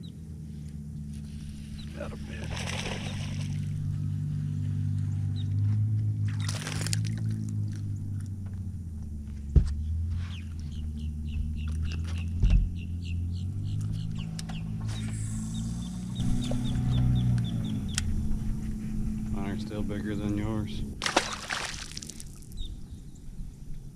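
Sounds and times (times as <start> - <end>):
low motor hum: 0.0 - 23.9
fish splashing at surface: 2.4 - 3.6, 6.3 - 7.4, 21.0 - 22.6
bird chirping: 10.2 - 18.5, 22.5 - 23.6.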